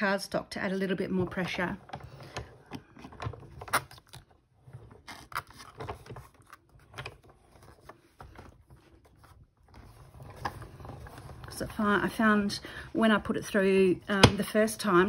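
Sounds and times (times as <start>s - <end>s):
cardstock rustling: 2.0s - 11.8s.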